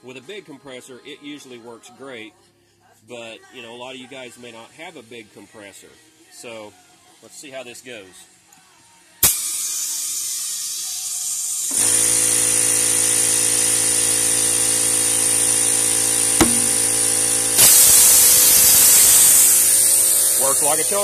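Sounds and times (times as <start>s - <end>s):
air compressor motor humming: 11.7s - 21.0s
compressed air hissing into tire: 15.2s - 21.0s
tire bead popping onto rim: 16.4s - 17.1s.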